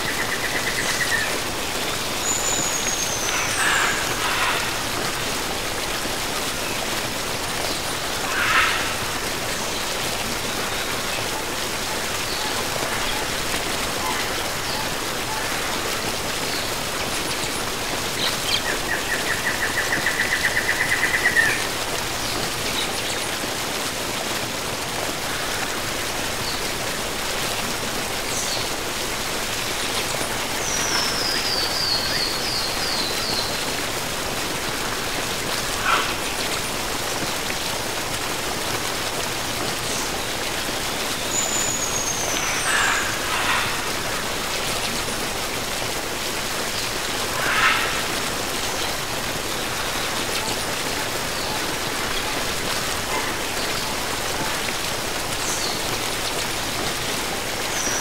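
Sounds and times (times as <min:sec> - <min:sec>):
waterfall rushing: 0:00.0 - 0:58.0
birds calling: 0:46.9 - 0:48.9.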